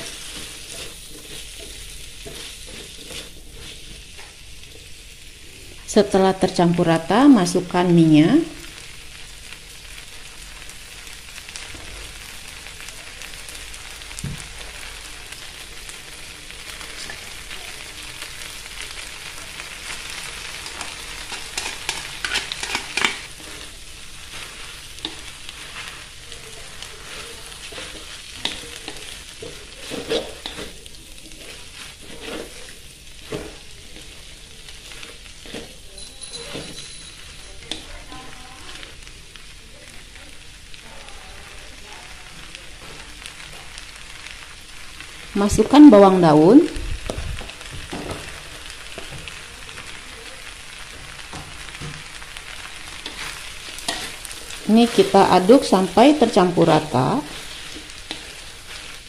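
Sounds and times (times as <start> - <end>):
food sizzling in oil: 0.0 - 59.0
tongs clacking against wok: 20.6 - 23.6, 35.4 - 38.1, 53.0 - 54.3.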